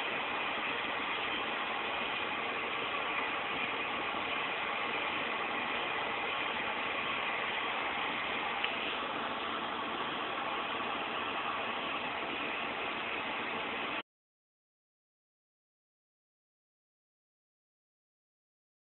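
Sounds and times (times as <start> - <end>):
room noise hiss: 0.0 - 14.0.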